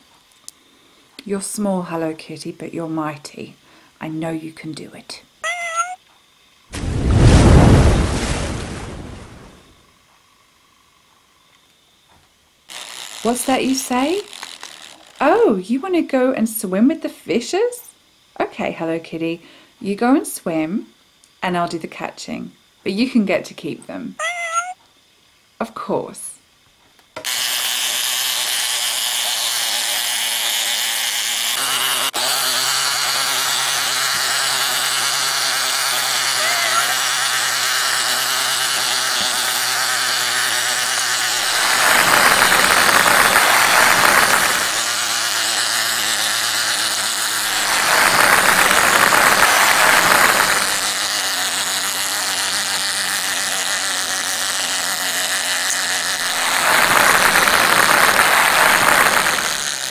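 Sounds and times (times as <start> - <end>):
toy motor and gears whirring: 5.1 - 6.1, 12.7 - 17.0, 24.2 - 24.8, 27.2 - 59.9.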